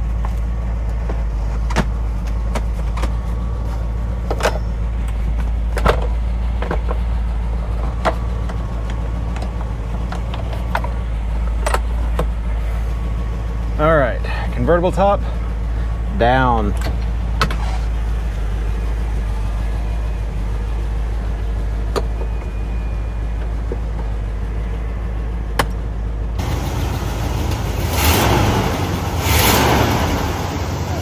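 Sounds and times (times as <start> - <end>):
car engine idling: 0.0 - 31.0
loud rushing surges: 26.4 - 31.0.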